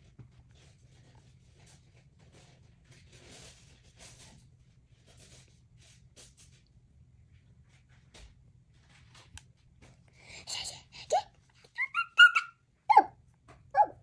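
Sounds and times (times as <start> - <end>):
toddler squealing: 11.8 - 13.1.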